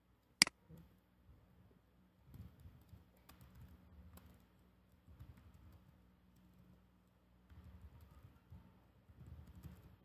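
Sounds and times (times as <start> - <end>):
computer keyboard typing: 2.3 - 6.5, 9.1 - 10.0.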